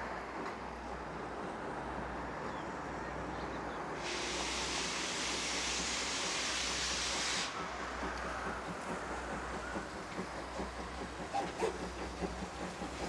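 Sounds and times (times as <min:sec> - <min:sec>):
steam locomotive rumbling: 0:00.0 - 0:13.0
loud steam hiss: 0:03.8 - 0:13.0.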